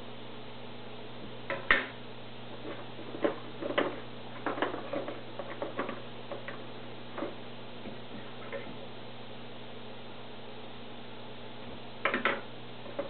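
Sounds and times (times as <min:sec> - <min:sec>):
low steady hum: 0:00.0 - 0:13.0
plastic basket clicks and knocks: 0:12.0 - 0:13.0.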